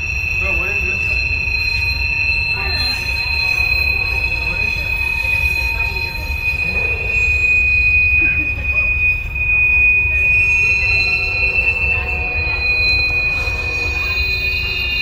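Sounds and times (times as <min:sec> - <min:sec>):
rumble of wheels on track: 0:00.0 - 0:15.0
train wheels squealing on rails: 0:00.0 - 0:15.0.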